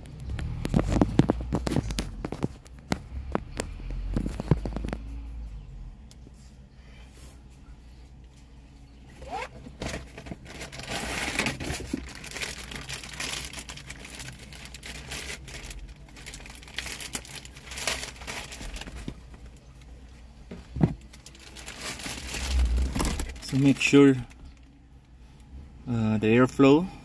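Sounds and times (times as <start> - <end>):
plastic wrapping crinkling: 0.0 - 5.0, 10.4 - 19.9, 20.9 - 24.7.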